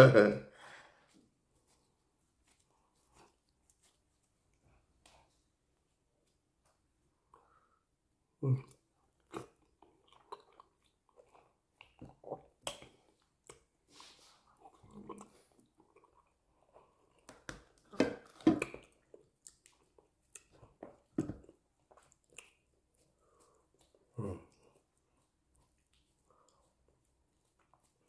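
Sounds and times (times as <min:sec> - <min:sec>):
person chewing and mouth sounds: 0:01.6 - 0:05.3, 0:08.4 - 0:28.0.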